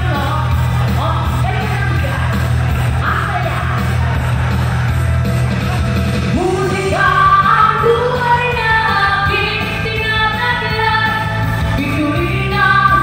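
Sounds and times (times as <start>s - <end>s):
backing music track: 0.0s - 13.0s
person singing into a microphone: 6.3s - 13.0s.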